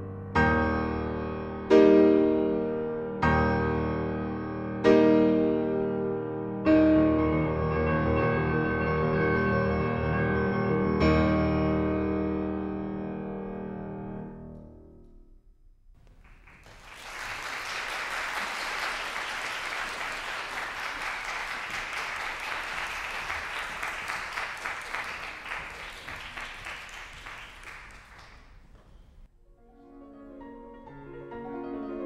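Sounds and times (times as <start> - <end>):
grand piano playing: 0.0 - 15.3, 29.5 - 32.0
audience applause: 16.0 - 29.1.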